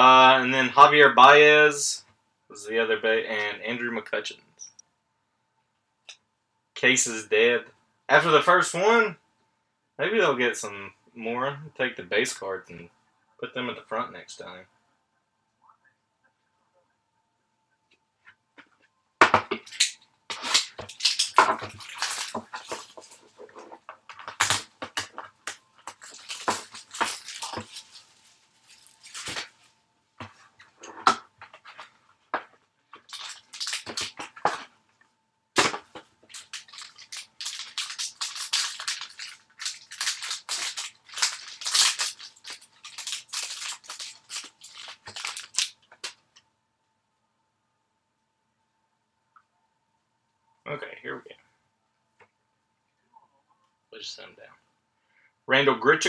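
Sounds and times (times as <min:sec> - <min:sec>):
packaging crinkling and tearing: 0:19.6 - 0:29.6, 0:32.9 - 0:34.7, 0:35.6 - 0:46.2.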